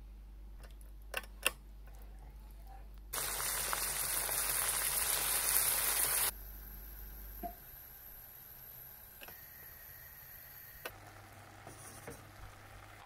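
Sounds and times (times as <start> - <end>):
vegetables sizzling in a frying pan: 3.2 - 13.0.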